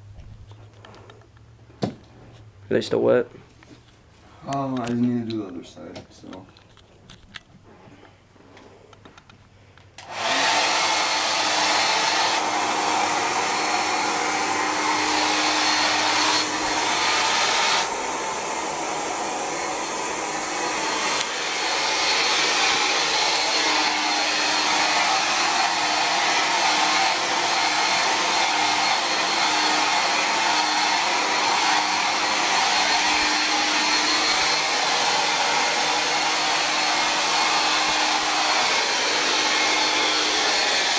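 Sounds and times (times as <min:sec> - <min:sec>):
hair dryer blowing: 0:10.0 - 0:40.9.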